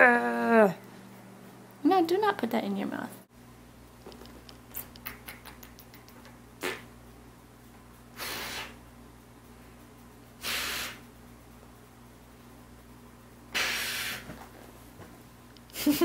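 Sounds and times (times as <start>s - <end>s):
lip smacks: 4.2s - 6.9s
hissy kisses: 4.5s - 6.9s, 8.1s - 8.8s, 10.4s - 11.1s, 13.5s - 14.4s.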